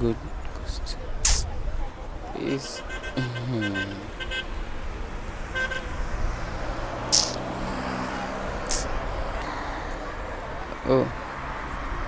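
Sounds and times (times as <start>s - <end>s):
road traffic passing: 0.0s - 12.0s
vehicle engine humming: 0.0s - 12.0s
car horn toot: 2.4s - 4.7s, 5.5s - 5.9s
sharp hisses: 8.7s - 8.9s.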